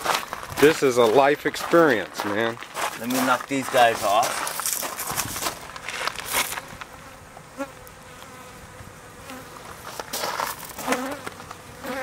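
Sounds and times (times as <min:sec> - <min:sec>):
brushing rustles: 0:02.8 - 0:06.8, 0:09.6 - 0:11.6
bees buzzing: 0:05.4 - 0:12.0.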